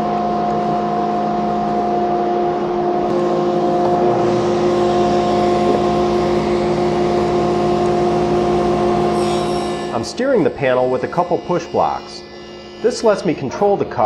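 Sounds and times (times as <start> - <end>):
table saw running: 0.0 - 14.0
saw blade cutting wood panel: 3.1 - 13.8.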